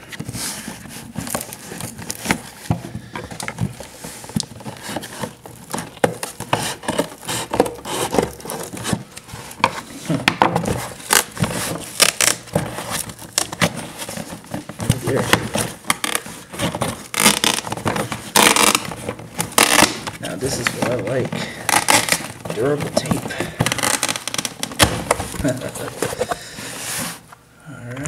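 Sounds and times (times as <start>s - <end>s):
cardboard box being opened: 0.0s - 27.3s.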